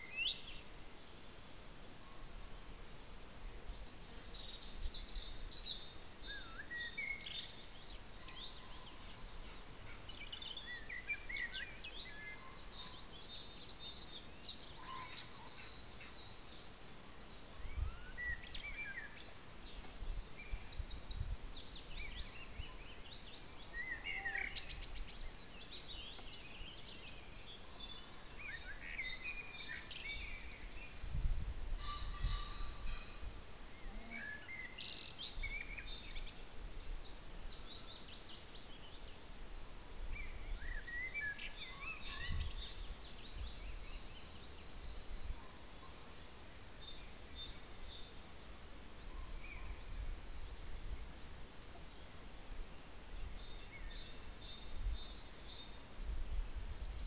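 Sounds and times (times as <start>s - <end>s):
birds chirping and trilling: 4.1s - 39.2s, 40.1s - 46.2s.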